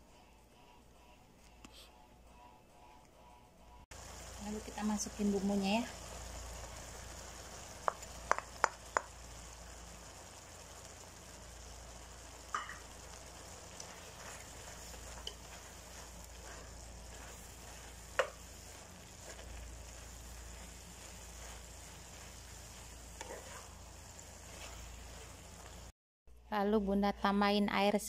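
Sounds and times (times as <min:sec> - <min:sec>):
food sizzling in a frying pan: 0:03.9 - 0:26.0
spatula tapping on pan: 0:07.8 - 0:09.2, 0:12.5 - 0:12.8, 0:18.1 - 0:18.4.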